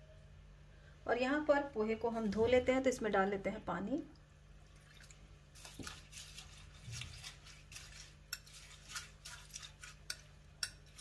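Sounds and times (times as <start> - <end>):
water sloshing in a bowl: 4.5 - 11.0.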